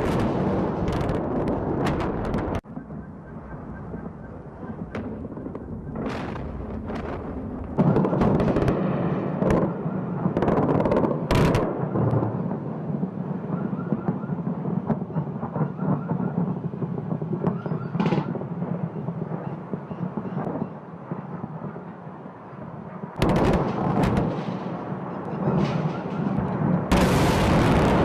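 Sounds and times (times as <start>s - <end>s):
loud explosion blasts: 0.0s - 2.6s, 4.8s - 19.3s, 23.2s - 28.0s
rolling rumble: 0.0s - 8.8s.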